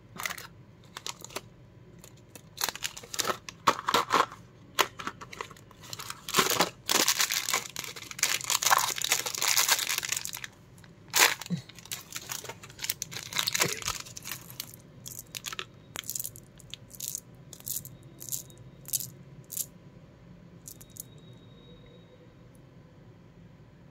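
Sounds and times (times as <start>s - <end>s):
packaging crinkling and tearing: 0.2s - 1.4s, 2.0s - 17.2s.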